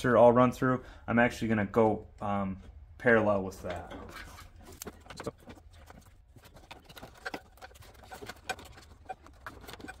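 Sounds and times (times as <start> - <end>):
wire leads clicking and rustling: 3.6 - 10.0.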